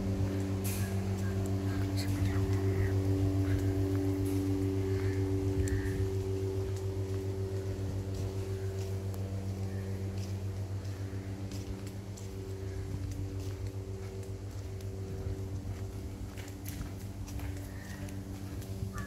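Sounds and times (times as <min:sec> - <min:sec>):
throbbing machine hum: 0:00.0 - 0:19.0.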